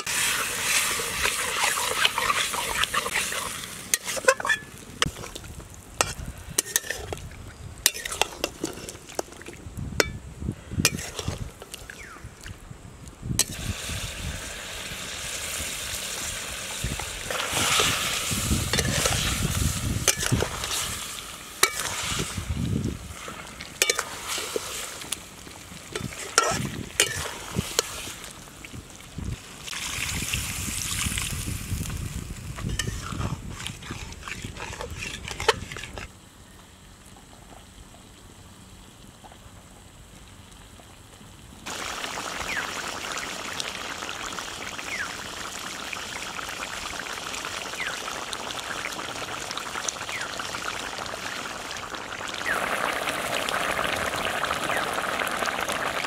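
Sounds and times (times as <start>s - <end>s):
chicken sizzling in a pan: 0.0s - 5.4s, 13.4s - 28.6s, 41.7s - 56.0s
spatula scraping a pan: 0.1s - 5.4s, 6.0s - 7.2s, 7.8s - 9.4s, 10.8s - 11.5s, 18.7s - 19.4s, 20.0s - 21.0s, 21.6s - 22.3s, 26.0s - 28.0s, 32.6s - 36.1s.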